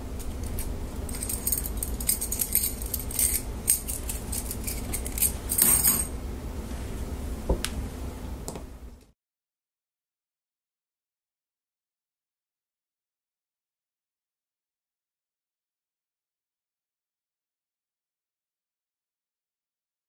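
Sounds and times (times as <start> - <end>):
low hum: 0.0 - 9.1
steel bars clinking: 0.4 - 6.1.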